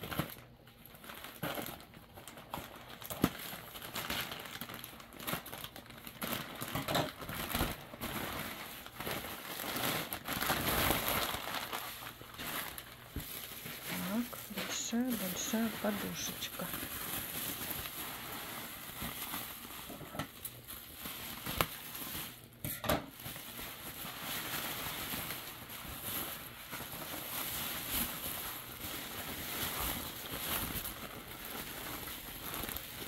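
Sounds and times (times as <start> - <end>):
bubble wrap crinkling: 0.0 - 33.0
plastic bag rustling: 0.0 - 33.0.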